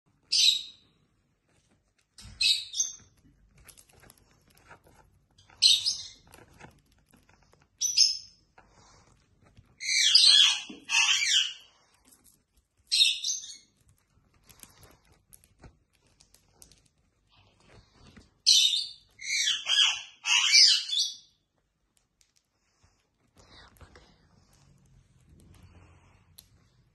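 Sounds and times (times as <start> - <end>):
lovebird chirping: 0.2 - 1.0, 2.2 - 3.2, 5.4 - 6.4, 7.8 - 8.4, 9.8 - 11.7, 12.9 - 13.8, 18.4 - 21.4.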